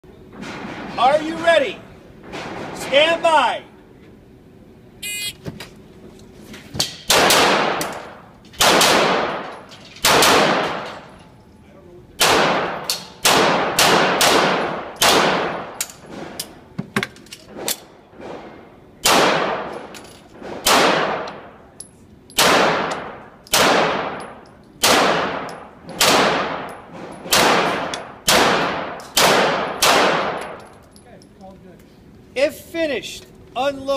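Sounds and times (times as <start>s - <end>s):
shot timer beep: 5.0s - 5.4s
handgun shots echoing indoors: 6.8s - 10.9s, 12.2s - 15.8s, 19.0s - 21.5s, 22.3s - 30.8s.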